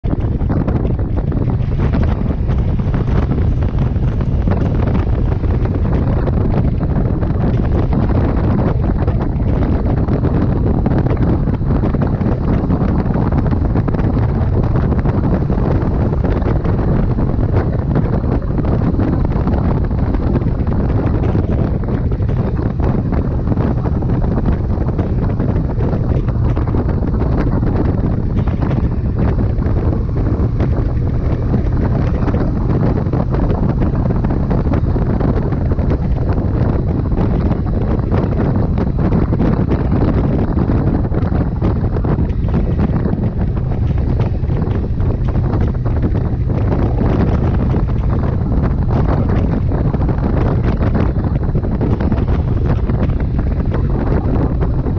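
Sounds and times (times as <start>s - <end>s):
wind buffeting the microphone: 0.0s - 54.9s.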